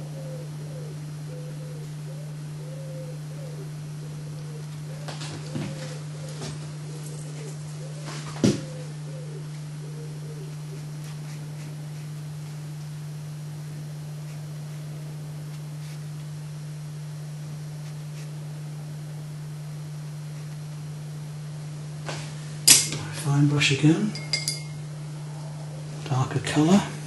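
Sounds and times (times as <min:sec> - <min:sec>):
low hum: 0:08.6 - 0:27.0.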